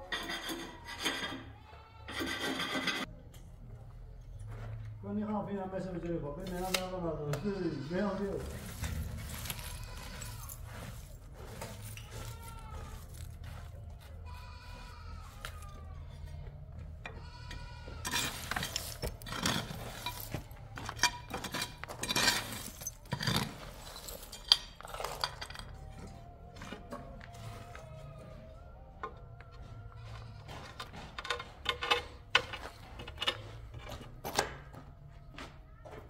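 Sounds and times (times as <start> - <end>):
livestock bleating: 1.6 - 2.3, 7.2 - 10.8, 12.0 - 13.3, 14.0 - 18.6
ceramic tiles clinking and scraping: 8.4 - 13.7, 17.2 - 26.1.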